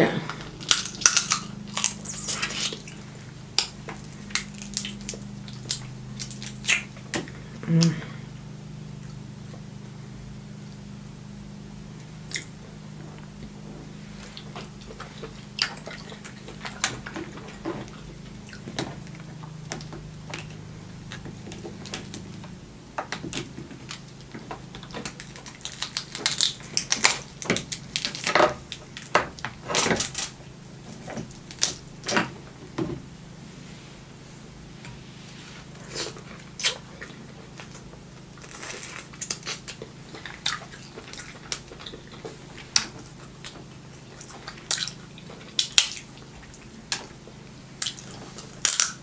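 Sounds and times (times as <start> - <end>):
crab shells cracking: 0.5 - 7.2, 18.5 - 32.2, 38.4 - 47.2, 47.8 - 49.0.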